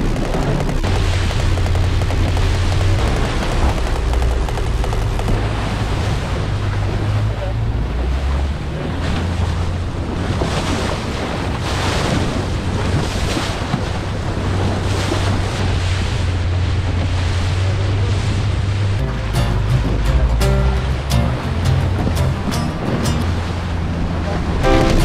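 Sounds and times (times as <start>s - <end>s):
wind buffeting microphone: 0.0s - 19.0s
water rushing around boat: 0.0s - 25.0s.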